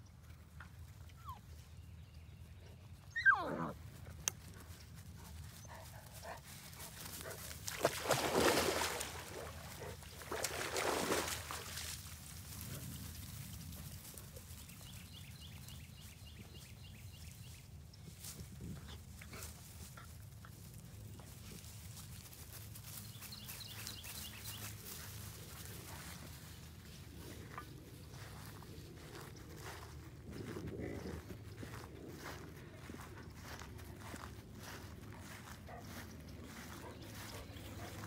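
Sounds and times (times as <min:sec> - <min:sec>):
dog yelping: 0:03.2 - 0:03.8.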